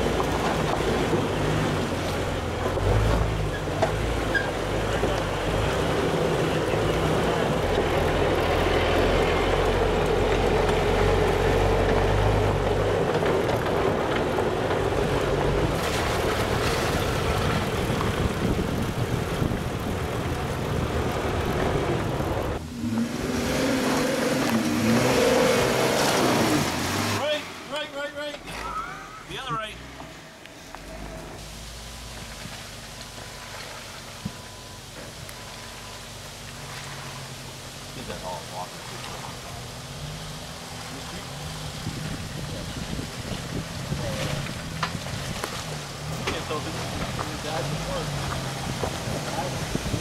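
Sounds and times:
jeep engine low rumble: 0.0 - 50.0
rough wash of noise: 0.0 - 50.0.

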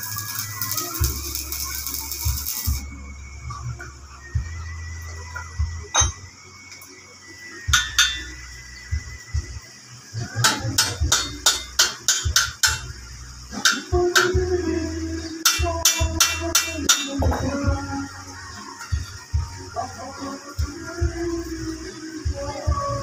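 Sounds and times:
hammer striking steel: 5.9 - 6.2, 7.7 - 8.3, 10.4 - 12.9, 15.4 - 17.3.

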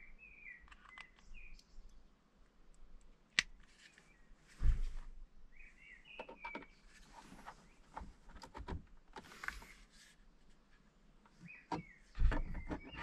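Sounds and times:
small plastic clicks: 0.6 - 3.7.

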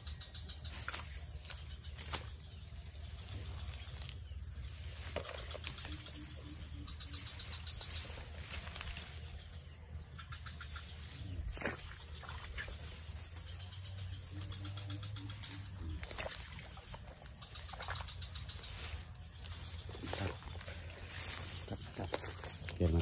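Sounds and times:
faint bird chirps: 0.0 - 23.0
tall grass rustling: 0.2 - 23.0.

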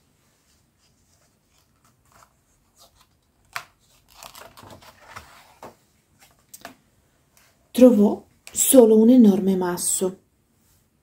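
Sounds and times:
paper rustling: 0.4 - 6.5.

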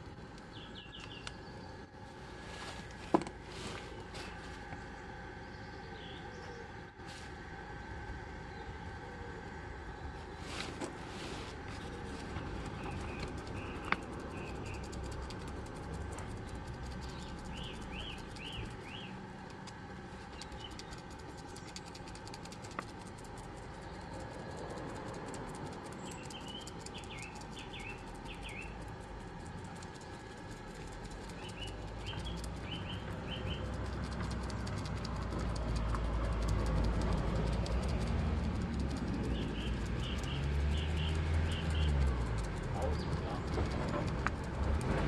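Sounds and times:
small bird chirping: 0.4 - 1.9, 5.4 - 6.7, 11.8 - 44.8
sharp clicks: 12.6 - 45.0.

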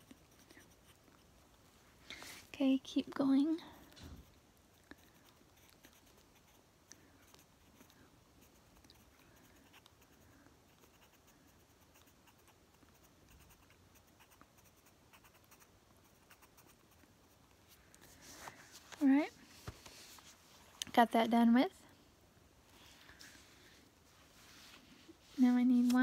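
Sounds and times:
pencil scratching on paper: 0.0 - 1.2.

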